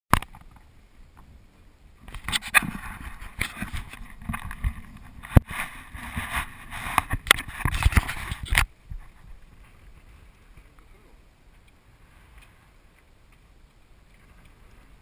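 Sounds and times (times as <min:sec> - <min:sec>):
camera handling scraping and knocks: 0:02.1 - 0:09.4.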